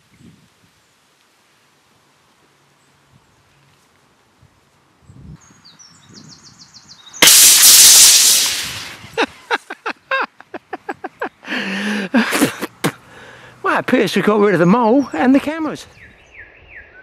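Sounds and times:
air rifle shot: 7.2 - 9.2
foam spraying hiss: 7.2 - 9.2
short sharp sounds: 7.2 - 9.2.

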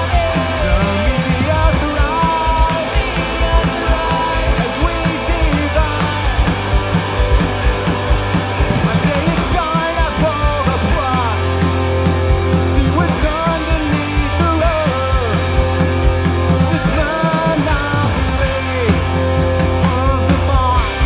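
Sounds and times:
man singing: 0.0 - 6.7, 8.8 - 11.8, 12.5 - 21.0
punk rock band playing live: 0.0 - 21.0.

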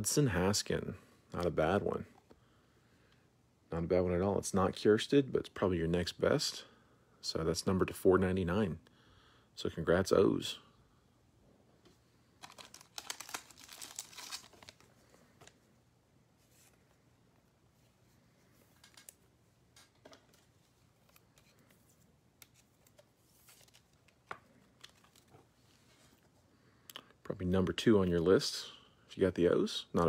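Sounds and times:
plastic sleeve crinkling: 12.4 - 15.6.

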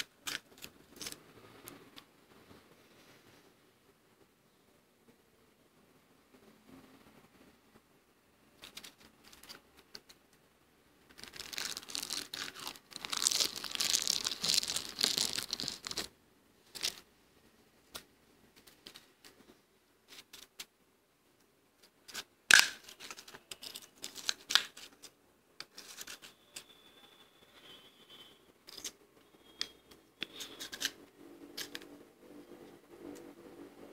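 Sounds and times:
frost being crunched and chewed: 11.2 - 16.1.

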